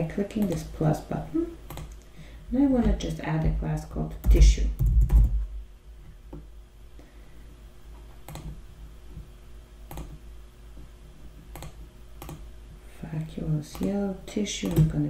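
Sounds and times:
faint low hum: 0.0 - 15.0
computer clicks: 0.4 - 0.7, 1.7 - 2.1, 8.2 - 8.6, 9.9 - 10.2, 11.5 - 12.5.

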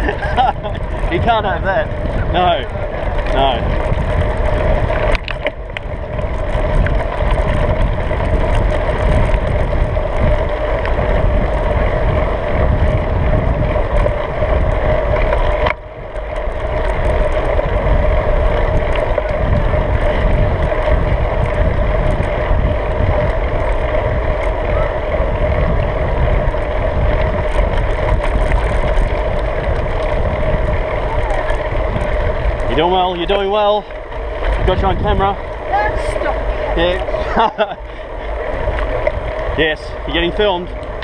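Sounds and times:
bicycle rolling on paved road: 0.0 - 41.0
wind buffeting microphone: 0.0 - 41.0.

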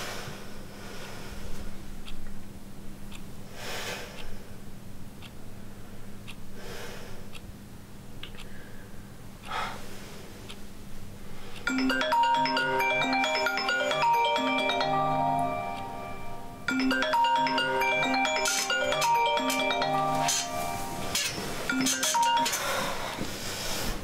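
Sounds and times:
soft breaths: 0.0 - 2.0, 3.4 - 4.7, 5.6 - 7.5, 8.3 - 11.7, 22.5 - 24.0
low steady hum: 0.0 - 24.0
marimba-like phone ringtone: 11.7 - 23.2.

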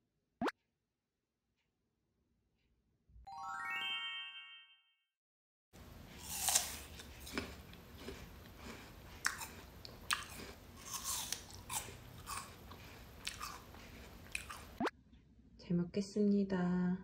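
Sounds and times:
person chewing crunchy food: 5.8 - 14.9.

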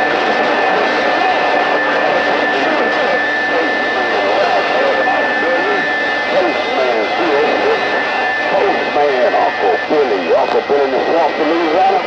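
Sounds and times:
faint garbled voices: 0.0 - 12.0
radio static: 0.0 - 12.0.

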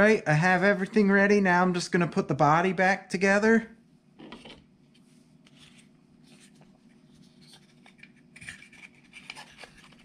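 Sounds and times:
plastic parts scraping and clicking: 7.4 - 10.0.

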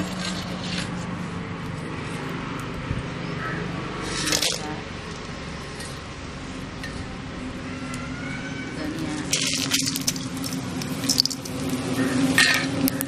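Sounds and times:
knife scraping chillies in pan: 0.0 - 1.0.

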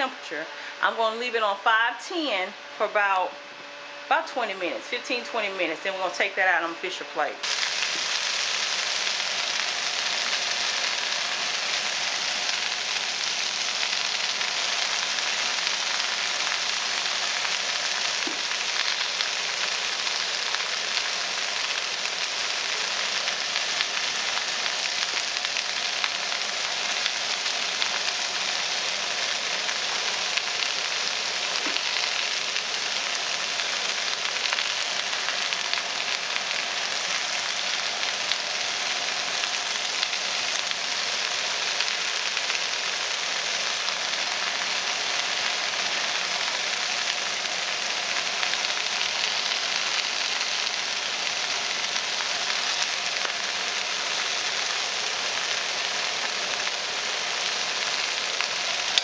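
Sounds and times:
vegetables sizzling in a pan: 4.2 - 59.0.

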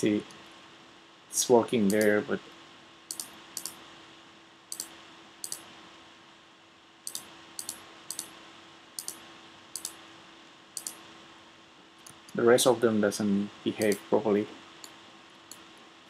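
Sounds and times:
faint electrical hum: 0.0 - 16.0.

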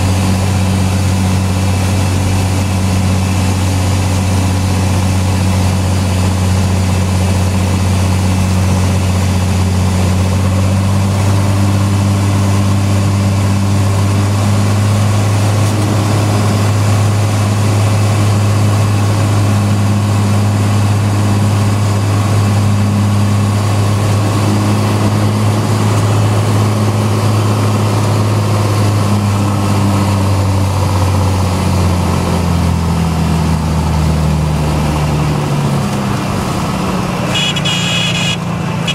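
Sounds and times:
propeller airplane engine droning: 0.0 - 38.9.

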